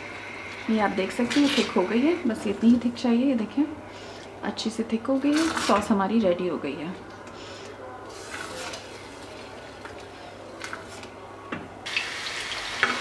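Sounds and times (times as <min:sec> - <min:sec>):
hot oil sizzling: 0:11.8 - 0:13.0.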